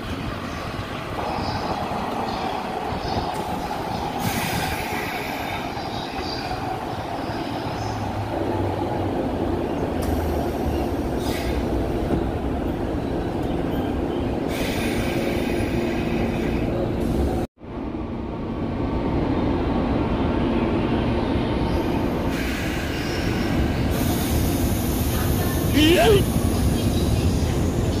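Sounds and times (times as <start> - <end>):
train wheels rumbling: 0.0 - 17.5
hiss: 4.2 - 5.7, 22.3 - 26.6.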